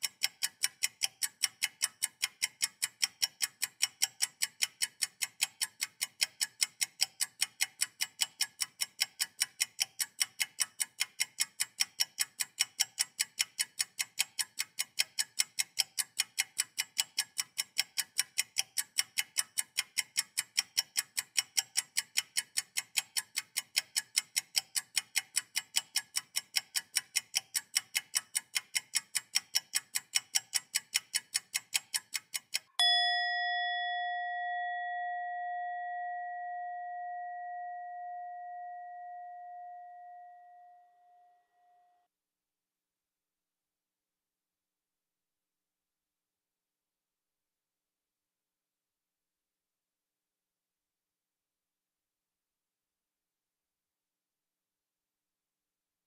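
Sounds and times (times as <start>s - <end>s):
clock-like ticking: 0.0s - 41.5s
ringing bell-like tone: 32.8s - 42.1s.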